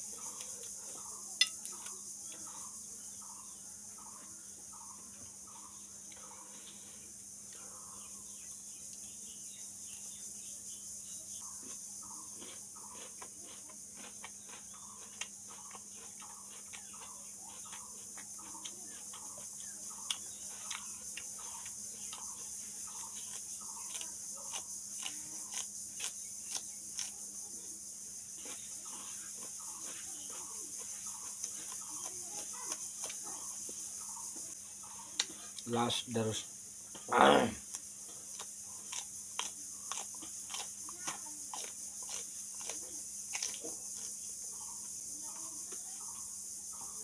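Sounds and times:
chewing and crunching: 0.0 - 2.8, 11.3 - 35.6, 37.6 - 44.9
high insect drone: 0.0 - 47.0.

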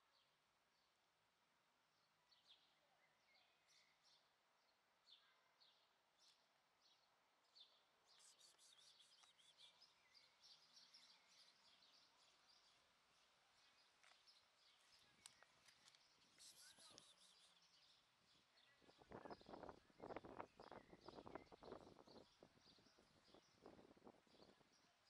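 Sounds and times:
small birds chirping: 2.0 - 25.0.

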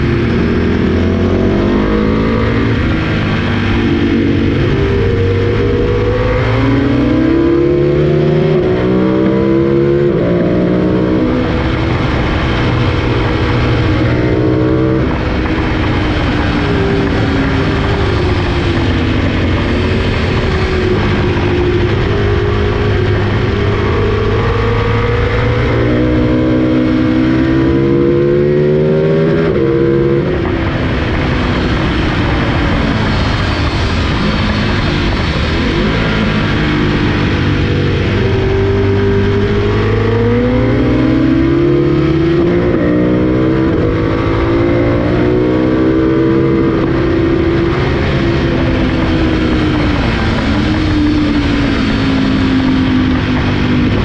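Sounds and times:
motorcycle engine revving: 0.0 - 54.0
wind rush on microphone: 0.0 - 54.0.

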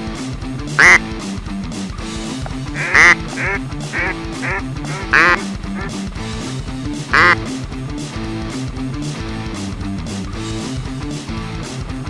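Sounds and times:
background music: 0.0 - 12.0
duck call quacks: 0.8 - 1.1, 2.8 - 6.0, 7.1 - 7.4.

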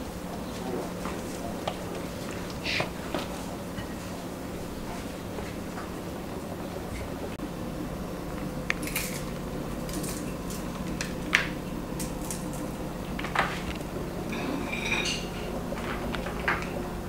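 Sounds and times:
steady low hum: 0.0 - 17.0
plates and utensils clinking: 2.7 - 5.6, 14.3 - 16.8.

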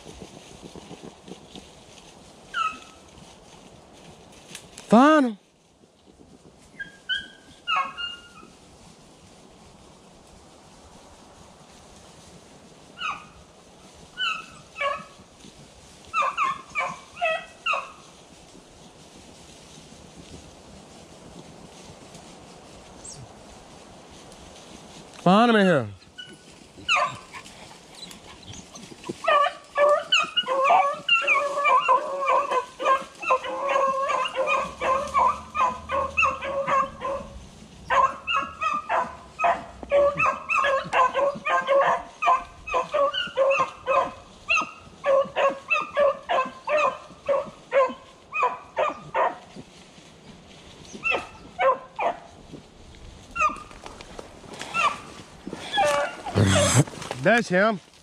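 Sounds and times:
hounds baying: 2.5 - 3.1, 6.7 - 8.6, 12.9 - 13.4, 14.2 - 15.3, 16.0 - 18.2, 26.0 - 52.4, 53.2 - 56.8.

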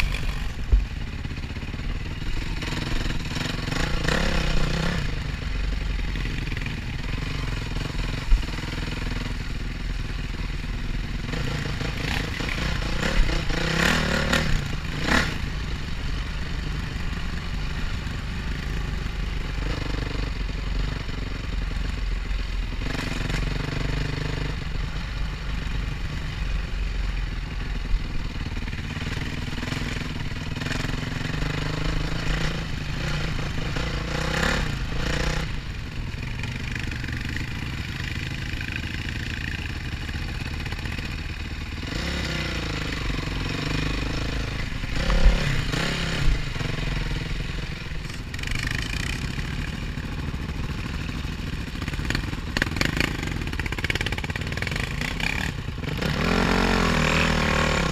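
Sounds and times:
dirt bike engine revving: 0.0 - 1.0, 2.1 - 9.6, 11.1 - 16.1, 28.8 - 35.6, 40.7 - 57.9.

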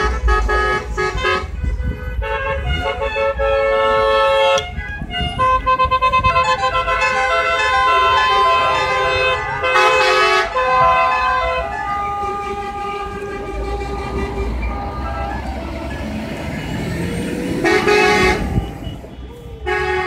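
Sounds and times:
car horns honking: 0.0 - 20.0
engines and tyres rumbling: 0.0 - 20.0.

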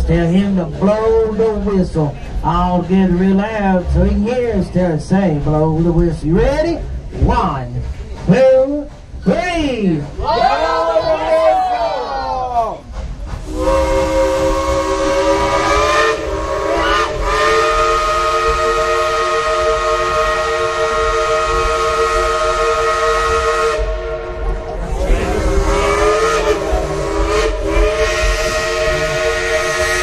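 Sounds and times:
steam hissing: 12.8 - 30.0
steam locomotive whistle chord: 13.4 - 30.0.

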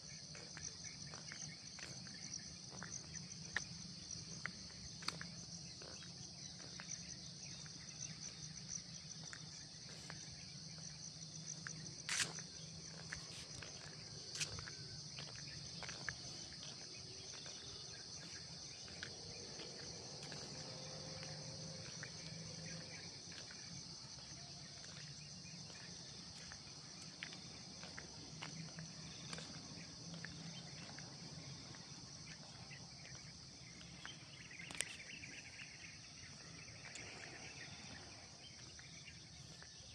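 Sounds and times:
insects chorus: 0.0 - 39.9.

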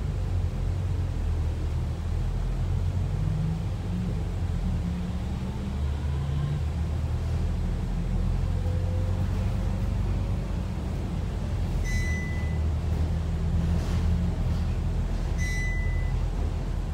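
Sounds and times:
bus diesel engine droning: 0.0 - 16.9.

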